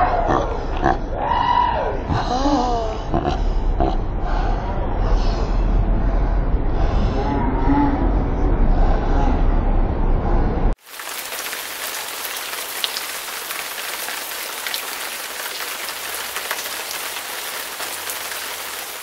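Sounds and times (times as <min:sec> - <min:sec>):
rain-like hiss: 0:10.8 - 0:19.0.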